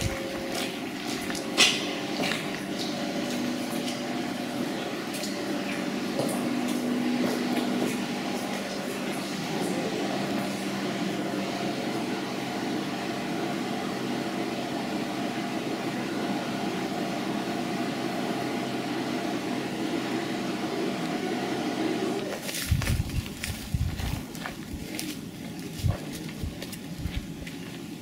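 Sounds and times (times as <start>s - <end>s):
low buffeting: 0.0s - 11.6s, 22.2s - 28.0s
machinery humming: 0.0s - 28.0s.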